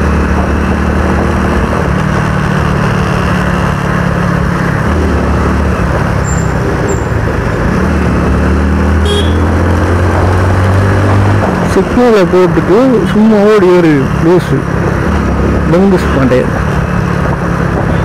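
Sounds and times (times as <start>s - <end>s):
wind noise on microphone: 0.0s - 8.5s, 16.5s - 18.0s
motorcycle engine running: 0.0s - 18.0s.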